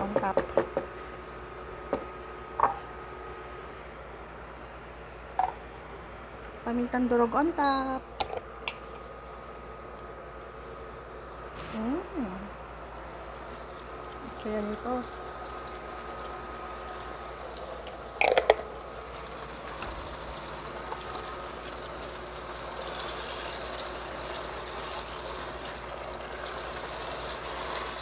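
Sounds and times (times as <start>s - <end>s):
food sizzling in a wok: 22.2s - 28.0s.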